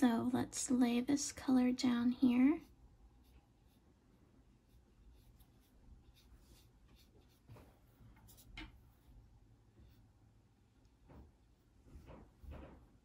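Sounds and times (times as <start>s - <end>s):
paintbrush swishing on paper: 1.9s - 10.2s.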